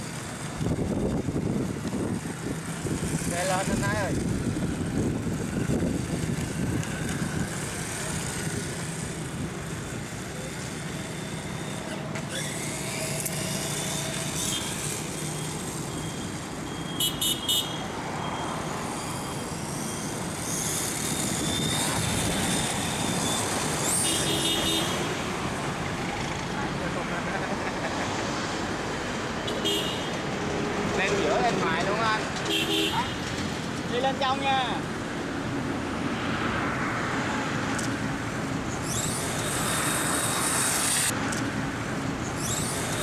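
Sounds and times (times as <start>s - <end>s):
toy motorcycle motor whine: 0.0s - 17.0s, 18.0s - 25.4s, 37.8s - 41.4s, 42.2s - 43.0s
road traffic noise: 0.0s - 43.0s.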